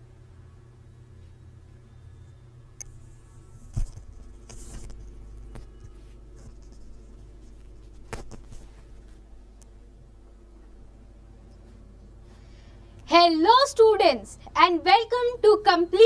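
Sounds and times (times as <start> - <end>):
steady low hum: 0.0 - 15.4
brief rustling: 3.6 - 9.3.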